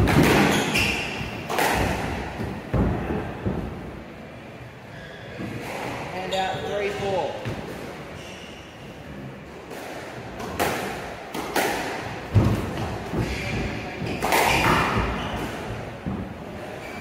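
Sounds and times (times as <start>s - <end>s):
squash racket strikes: 0.0s - 3.8s, 9.7s - 16.3s.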